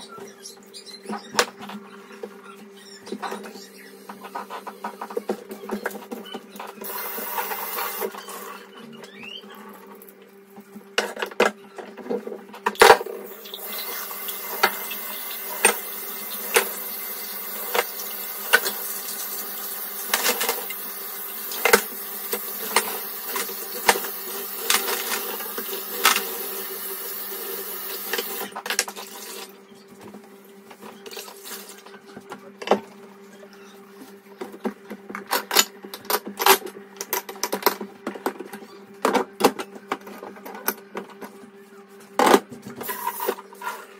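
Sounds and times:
tap water running into sink: 13.4 - 28.5.

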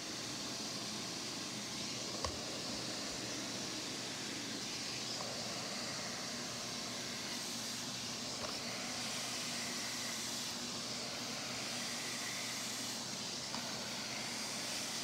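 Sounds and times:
carpet cleaner suction motor: 0.0 - 15.0
hiss of air and water suction: 5.5 - 15.0.

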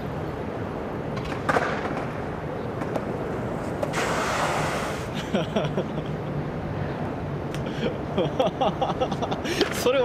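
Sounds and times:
road traffic hum: 0.0 - 10.0
short hissing rush: 3.8 - 5.2.

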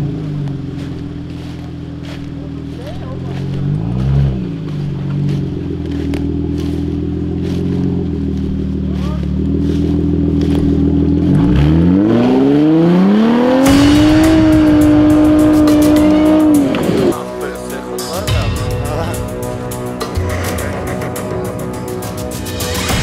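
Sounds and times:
engine revving: 0.0 - 23.0
rough rushing noise: 13.6 - 23.0.

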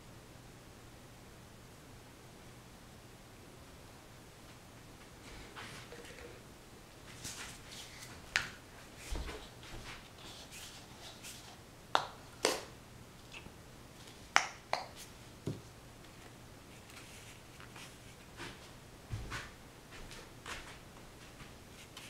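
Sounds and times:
soft rustling: 4.4 - 11.6, 15.0 - 22.0.

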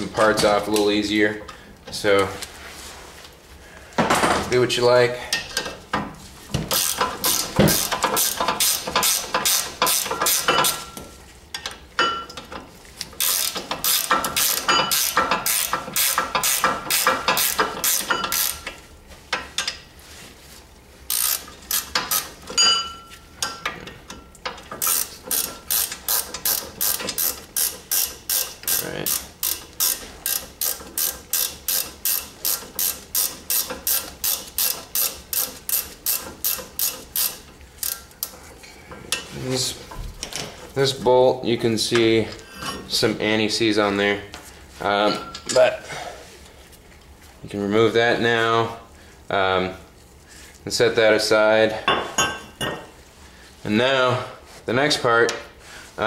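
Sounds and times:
socket ratchet clicking: 13.2 - 18.6, 24.8 - 38.3.

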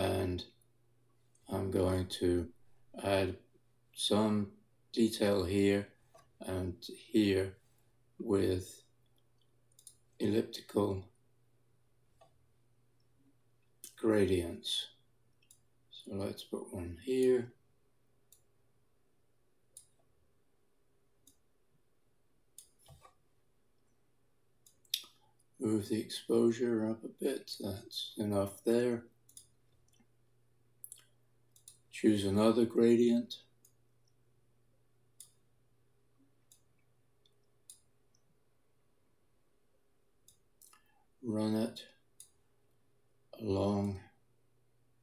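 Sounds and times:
faint low hum: 0.0 - 45.0
faint computer mouse clicks: 9.0 - 10.0, 19.7 - 20.1, 21.2 - 21.4, 22.6 - 23.2, 29.3 - 30.1, 30.8 - 31.8.

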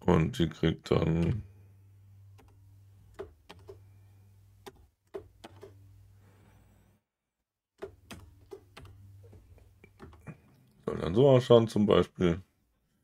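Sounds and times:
keyboard keystrokes: 2.3 - 3.8, 4.6 - 5.8, 7.8 - 10.3.

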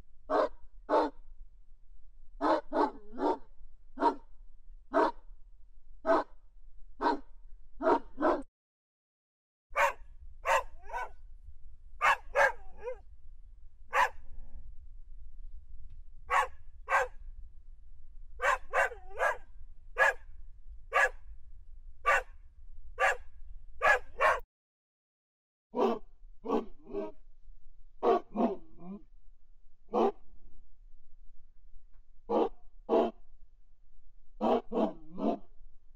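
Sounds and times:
dog barking: 0.3 - 1.2, 2.4 - 4.3, 4.9 - 5.2, 6.0 - 6.4, 7.0 - 8.5, 9.7 - 11.2, 12.0 - 13.0, 13.9 - 14.2, 16.3 - 17.2, 18.4 - 20.2, 20.9 - 21.2, 22.0 - 22.3, 23.0 - 24.4, 25.8 - 27.2, 28.0 - 28.7, 29.9 - 30.2, 32.3 - 33.2, 34.4 - 35.5.

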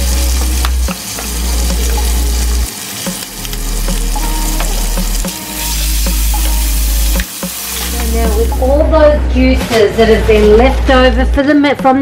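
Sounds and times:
meat sizzling in a pan: 0.0 - 8.6.

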